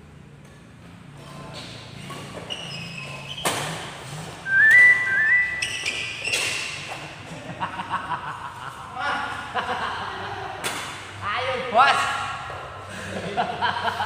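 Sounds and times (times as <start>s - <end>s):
shoes squeaking on wooden floor: 1.5s - 7.2s.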